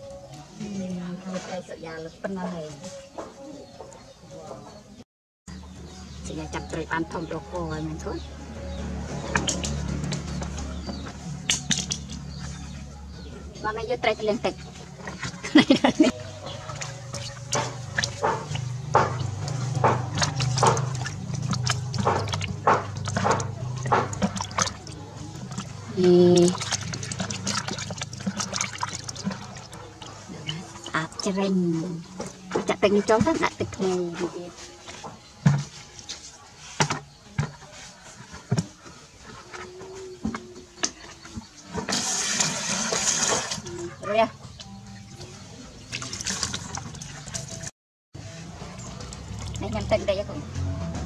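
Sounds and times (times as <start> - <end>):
fish splashing in bucket: 16.4 - 31.2, 40.7 - 43.9, 45.8 - 47.7, 48.6 - 49.9.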